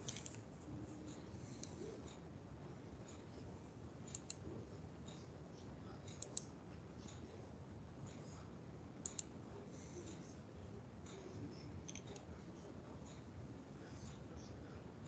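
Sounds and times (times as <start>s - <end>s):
low steady hiss: 0.0s - 15.0s
faint clicking: 4.0s - 5.3s, 6.0s - 7.3s, 9.0s - 9.4s.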